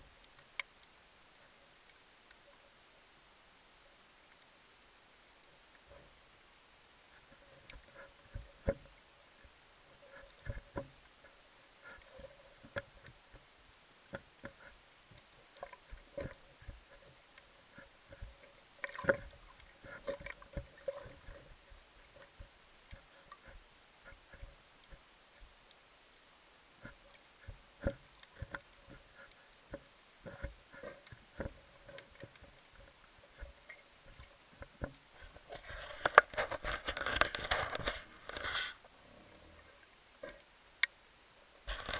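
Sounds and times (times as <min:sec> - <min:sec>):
faint steady tone: 0:00.0 - 0:41.9
sharp underwater clicks: 0:00.2 - 0:02.6
underwater clicks and knocks: 0:07.3 - 0:09.0, 0:10.0 - 0:13.4, 0:14.1 - 0:25.5, 0:26.8 - 0:38.4.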